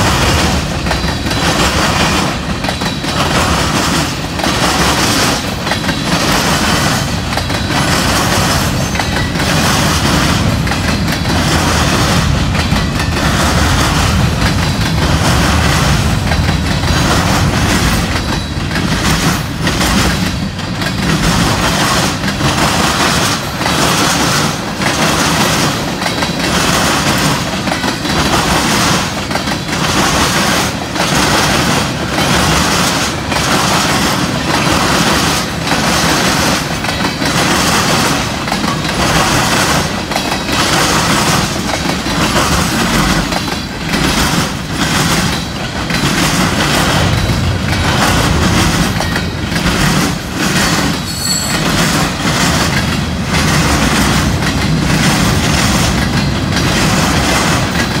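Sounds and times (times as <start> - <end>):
train wheels clattering on track: 0.0 - 58.0
high wheel squeal: 51.0 - 51.9.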